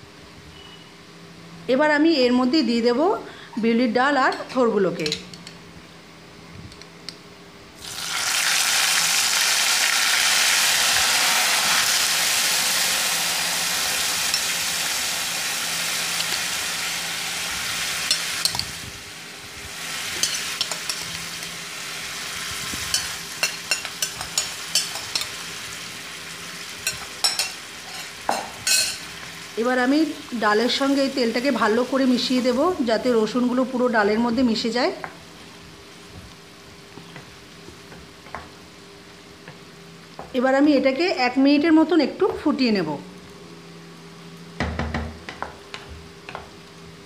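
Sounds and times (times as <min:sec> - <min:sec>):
food sizzling in hot oil: 0:07.8 - 0:33.7.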